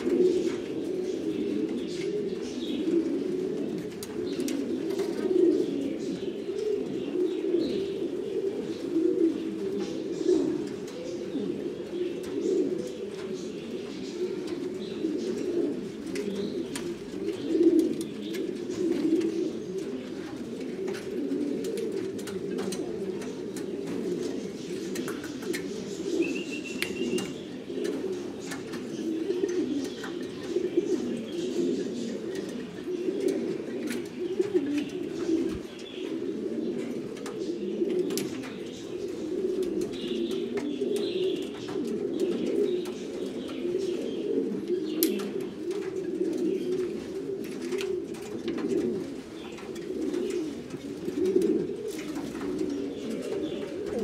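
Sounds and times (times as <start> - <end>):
pigeons cooing: 0.0 - 54.0.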